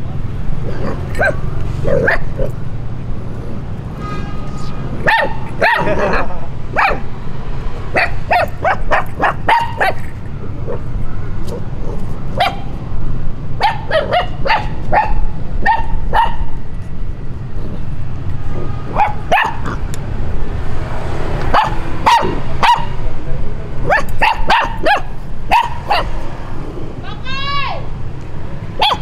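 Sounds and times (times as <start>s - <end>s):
puppies barking: 0.6s - 2.6s, 5.0s - 7.1s, 7.9s - 12.8s, 13.6s - 16.6s, 18.6s - 19.9s, 21.4s - 23.0s, 23.8s - 26.3s, 28.7s - 29.0s.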